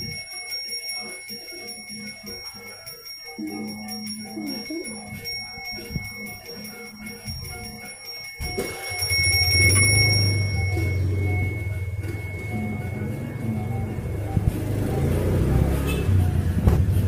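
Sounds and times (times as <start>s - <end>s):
hand bell ringing: 0.0s - 16.4s
motorbike engine: 8.4s - 17.0s.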